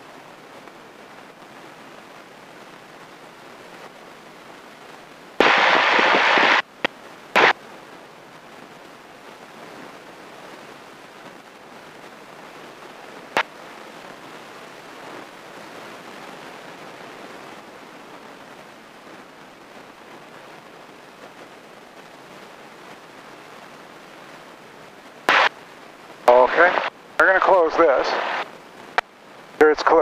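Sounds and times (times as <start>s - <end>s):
aircraft cabin hiss: 5.4s - 6.6s, 26.3s - 28.4s
loud hissing burst: 5.4s - 6.6s, 25.3s - 25.5s, 26.3s - 28.4s.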